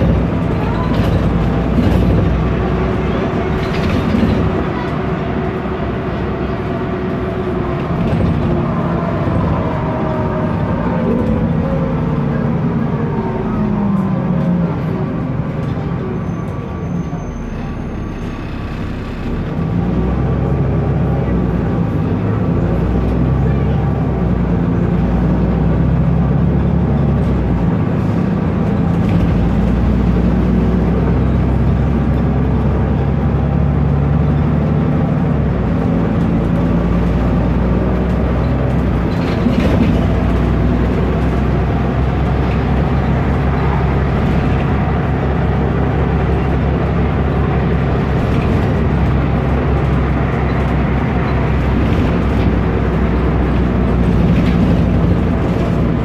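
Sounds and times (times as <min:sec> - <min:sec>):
bus diesel engine droning: 0:00.0 - 0:56.0.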